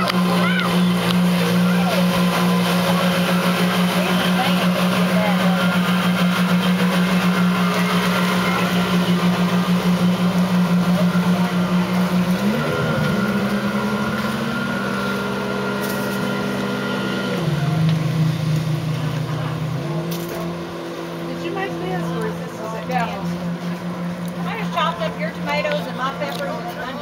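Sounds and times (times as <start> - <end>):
jet boat engines running: 0.0 - 27.0.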